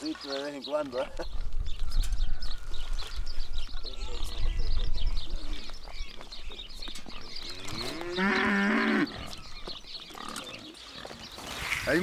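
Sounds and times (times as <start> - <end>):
small birds chirping: 0.0 - 12.0
calf mooing: 7.8 - 9.2.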